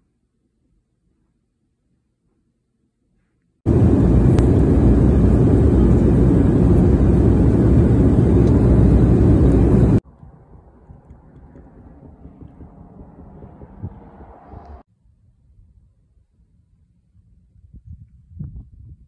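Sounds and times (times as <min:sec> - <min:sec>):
jet engines and airflow rushing: 0:03.7 - 0:14.9.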